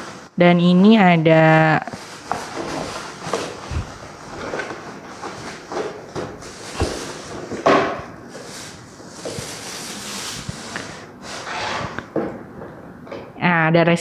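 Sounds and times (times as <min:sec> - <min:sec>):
plastic bag crinkling: 0:01.8 - 0:05.8, 0:08.3 - 0:11.1
cardboard flaps rustling and scraping: 0:01.9 - 0:12.0.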